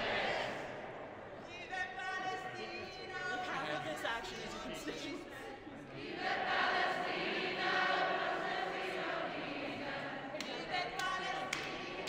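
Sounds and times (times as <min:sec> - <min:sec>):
crowd singing together: 0:00.0 - 0:01.4, 0:04.5 - 0:12.0.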